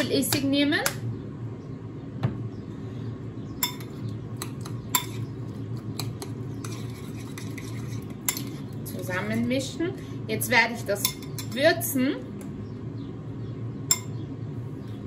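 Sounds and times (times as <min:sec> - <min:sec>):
steady low hum: 0:00.0 - 0:15.0
metal spoon clinking ceramic bowl: 0:03.6 - 0:05.2, 0:06.0 - 0:08.6, 0:11.0 - 0:11.6, 0:13.9 - 0:14.1.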